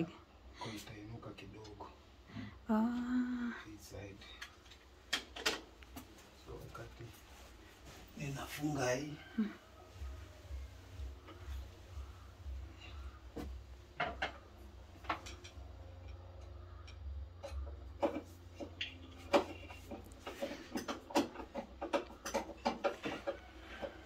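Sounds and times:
faint low hum: 5.8 - 22.4.

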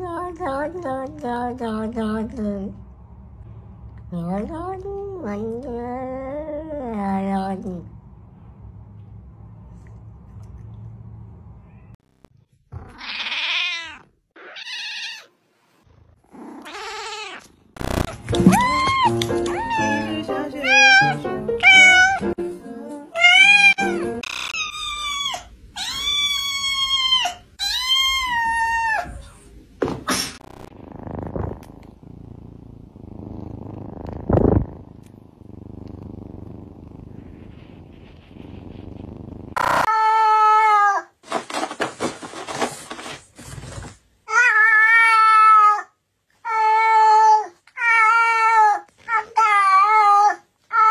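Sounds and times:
cats meowing: 12.8 - 15.3, 16.6 - 22.3, 23.2 - 29.2.

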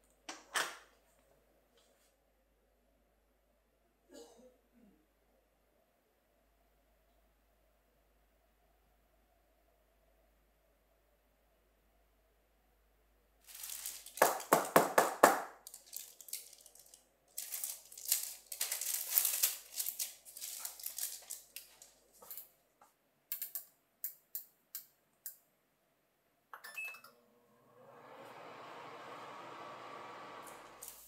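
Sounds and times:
parchment paper crinkling: 13.4 - 14.8, 15.6 - 22.4, 30.8 - 31.0.

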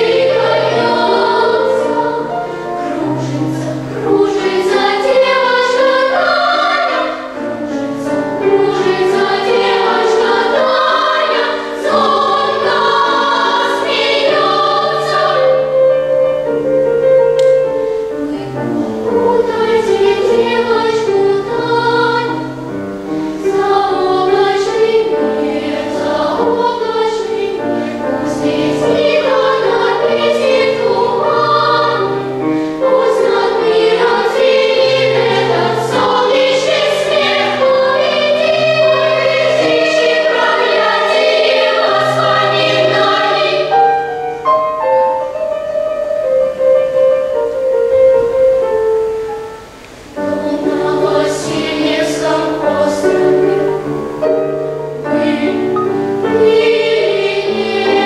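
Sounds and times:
children's choir singing: 0.0 - 58.0.

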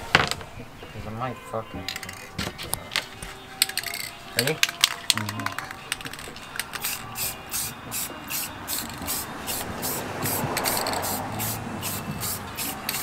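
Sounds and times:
background music with quick beat: 1.8 - 13.0
spray paint can hissing: 5.5 - 13.0.

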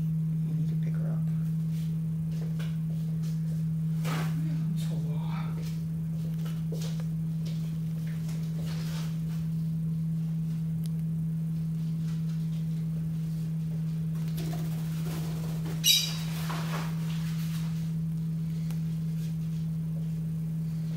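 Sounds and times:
steady low hum: 0.0 - 20.9
bird chirp: 15.8 - 16.3.

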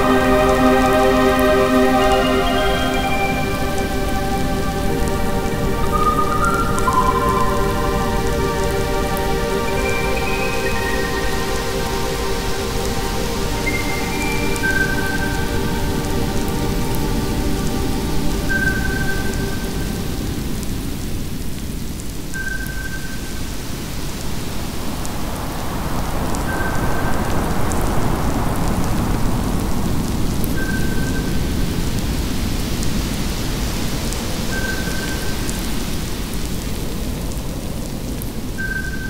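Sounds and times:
short high tone: 0.0 - 19.5
rumbling wash of noise: 0.0 - 22.2
faint scattered crackles: 0.0 - 39.0.

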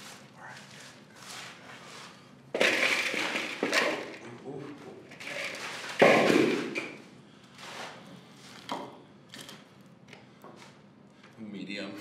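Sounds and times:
loud thud: 6.0 - 6.8.

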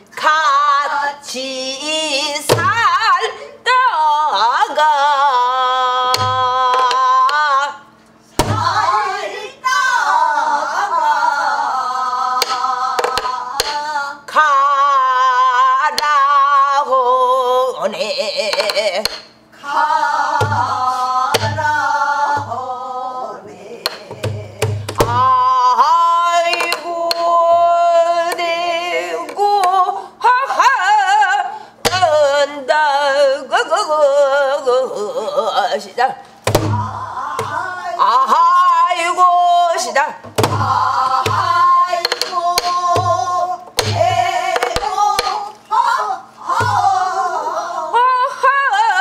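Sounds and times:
person singing with vibrato: 0.0 - 49.0
barrel drum thumps: 8.4 - 8.8, 20.4 - 20.8, 21.4 - 21.7, 24.1 - 25.4, 36.4 - 37.6, 40.2 - 45.4, 46.5 - 46.9
drum stick clicks: 12.4 - 13.8, 18.5 - 19.4, 23.8 - 24.3, 26.5 - 27.3, 29.3 - 29.8, 42.0 - 43.0, 43.8 - 45.5.

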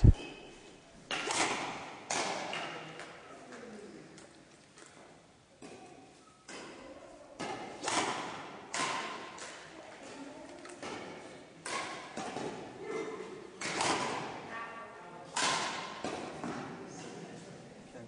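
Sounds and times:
racket striking shuttlecock: 1.1 - 3.2, 7.4 - 9.7, 10.7 - 12.7, 13.6 - 14.5, 15.3 - 16.8.

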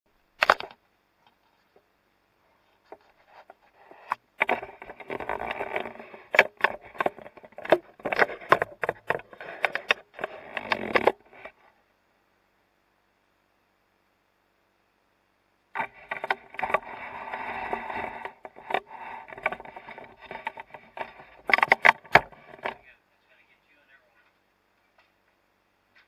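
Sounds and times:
camera handling clicks and scraping: 2.9 - 11.6, 15.8 - 22.8.

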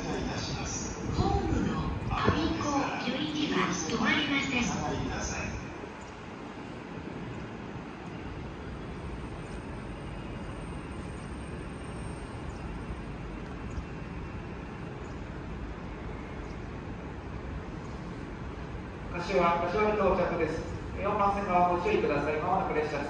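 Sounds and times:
low rumble: 0.0 - 3.7.

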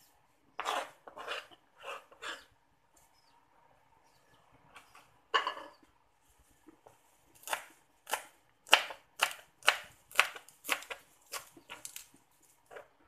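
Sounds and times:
knife chopping on cutting board: 7.4 - 11.5.

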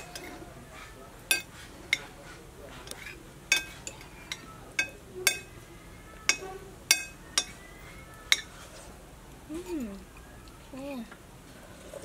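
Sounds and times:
metal spoons clinking on bowls: 0.0 - 0.5, 1.2 - 5.6, 6.2 - 7.7, 8.3 - 8.6.

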